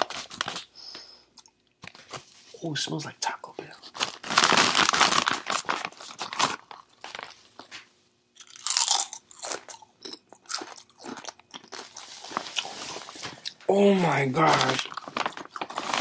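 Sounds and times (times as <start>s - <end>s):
foil bag crinkling: 0.0s - 0.7s, 3.8s - 7.8s, 10.6s - 16.0s
chips crunching: 3.9s - 7.8s, 8.4s - 16.0s.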